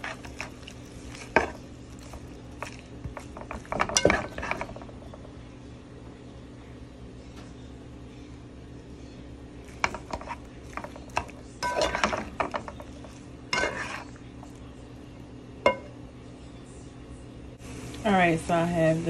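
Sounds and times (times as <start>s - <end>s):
tongs clacking and scraping cookware: 0.0s - 5.3s, 9.7s - 14.5s, 15.6s - 16.0s
steady low hum: 0.0s - 19.0s.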